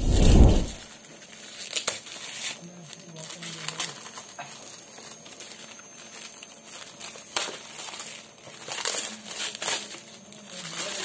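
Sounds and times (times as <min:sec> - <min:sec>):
bubble wrap crinkling: 0:00.0 - 0:11.0.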